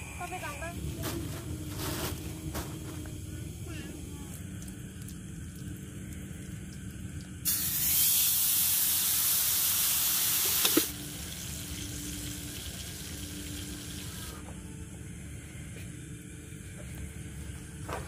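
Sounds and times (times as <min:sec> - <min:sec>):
burger patty sizzling on grill pan: 0:07.4 - 0:14.4.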